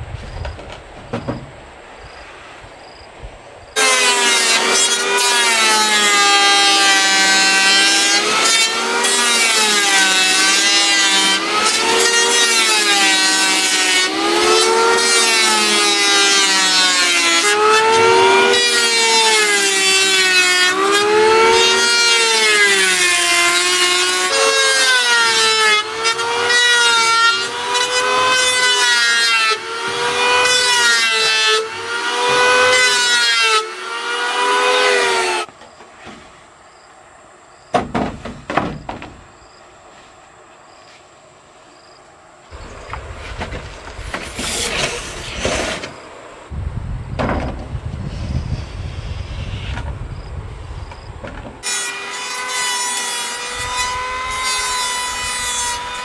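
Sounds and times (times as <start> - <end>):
electric hand planer shaving wood: 3.8 - 35.5, 42.9 - 46.0, 51.0 - 56.0.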